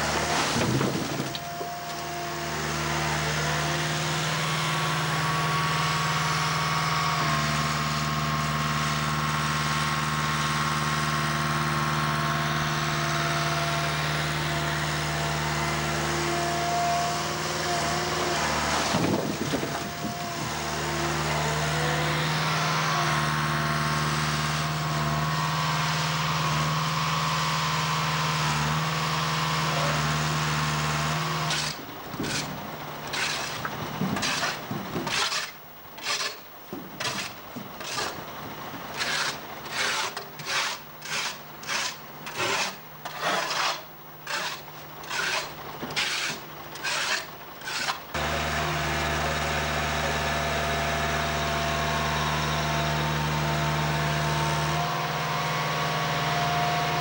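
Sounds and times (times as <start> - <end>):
loader engine running: 0.0 - 35.0, 47.4 - 57.0
shovel scraping metal floor: 31.5 - 36.4, 37.0 - 38.3, 38.9 - 48.3.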